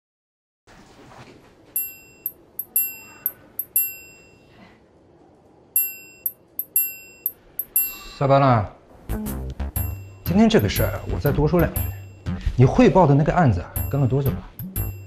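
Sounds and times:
bell-like chime music: 1.8s - 4.6s, 5.8s - 8.2s, 9.8s - 12.5s, 13.8s - 15.0s.

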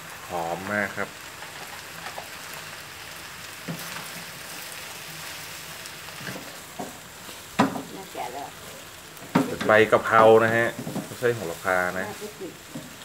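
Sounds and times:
food sizzling in a wok: 0.0s - 13.0s
wooden spatula scraping pan: 8.6s - 13.0s.

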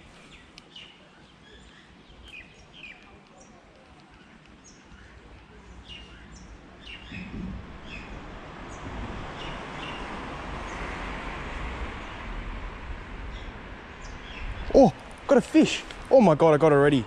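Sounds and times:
small birds chirping: 0.0s - 10.8s.

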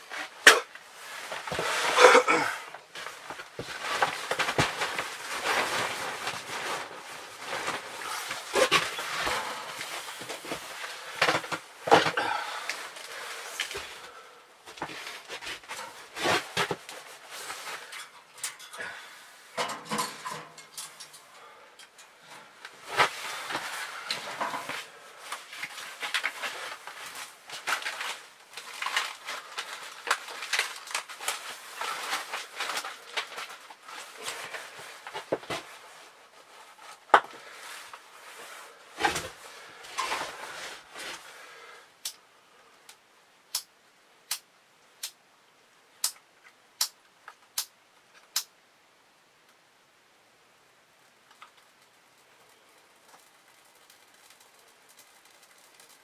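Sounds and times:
sticks knocking and clattering: 22.9s - 35.6s
bark rustling and crackling: 51.3s - 56.0s.

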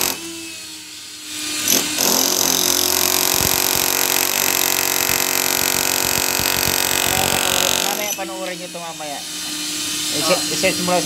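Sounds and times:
motor whine: 0.0s - 11.0s
demolition hammer breaking concrete: 1.7s - 8.0s.

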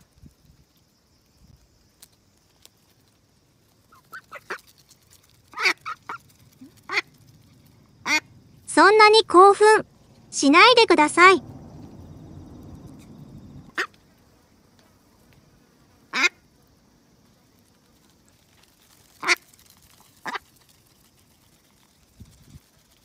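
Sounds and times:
duck quacking: 5.5s - 7.1s, 8.0s - 8.3s, 13.7s - 13.9s, 16.1s - 16.4s.

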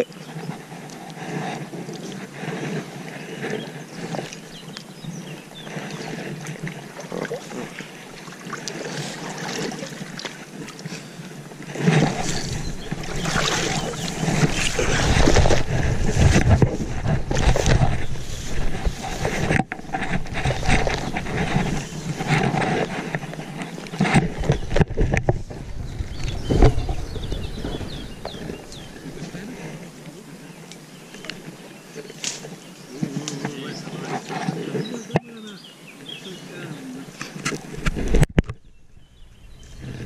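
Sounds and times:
clothing and grass rubbing microphone: 0.0s - 40.0s
deep rumbling buffets: 24.4s - 30.5s.

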